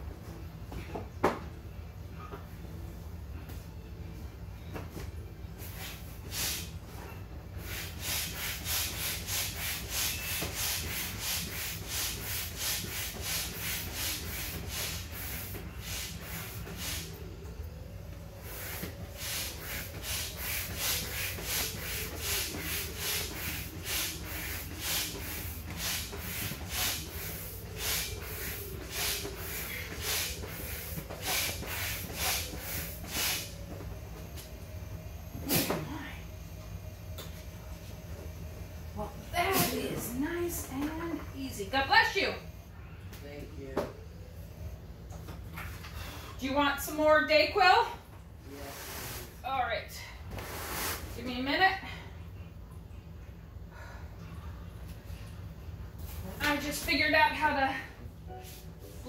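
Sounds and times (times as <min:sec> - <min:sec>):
manual air pump strokes: 0:07.6 - 0:17.2, 0:18.4 - 0:33.8, 0:48.5 - 0:49.4, 0:50.3 - 0:51.2.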